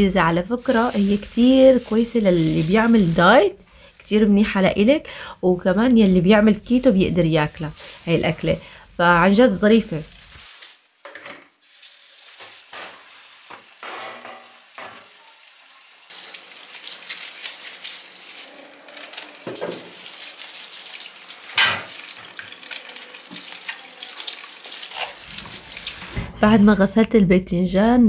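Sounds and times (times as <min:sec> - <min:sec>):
water splashing over vegetables: 0:00.4 - 0:03.5, 0:16.1 - 0:26.2
tap water running into sink: 0:16.1 - 0:26.3.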